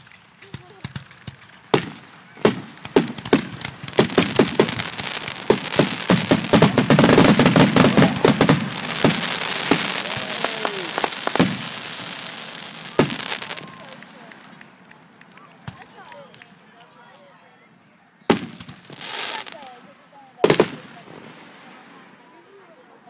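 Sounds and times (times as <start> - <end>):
fireworks hiss: 0.0 - 14.6, 18.3 - 19.8
fireworks bangs and crackling: 0.0 - 16.6, 18.3 - 23.0.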